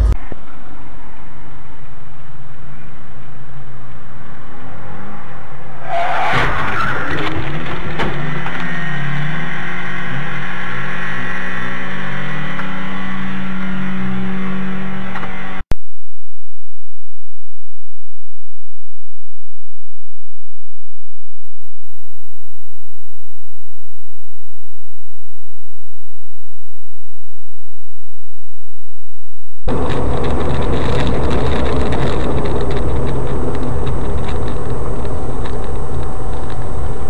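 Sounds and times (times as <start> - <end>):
loud car crash: 5.8 - 12.2
car engine running: 7.0 - 15.6, 29.7 - 37.0.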